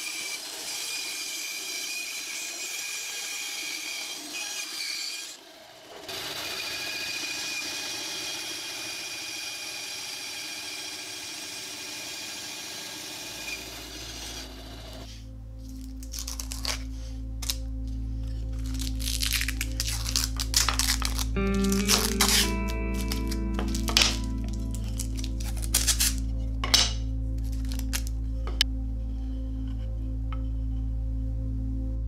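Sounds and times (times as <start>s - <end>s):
bandsaw cutting wood: 0.0s - 15.1s, 19.5s - 26.2s
music: 15.0s - 32.0s.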